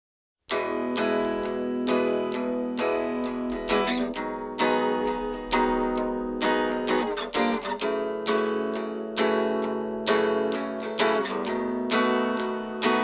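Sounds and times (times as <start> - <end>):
acoustic guitar strumming chords: 0.5 - 13.0.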